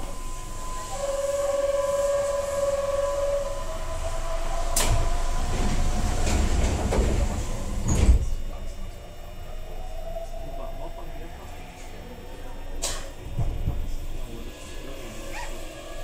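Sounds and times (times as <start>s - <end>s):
door warning tone: 0.0s - 15.7s
sliding train doors closing: 1.1s - 8.6s.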